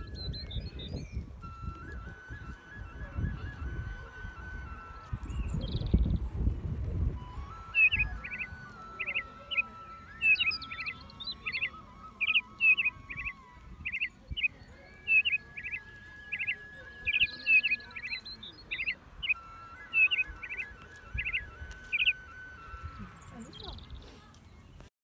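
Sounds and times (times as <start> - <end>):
faint background music: 0.0 - 24.9
small birds chirping: 0.0 - 24.9.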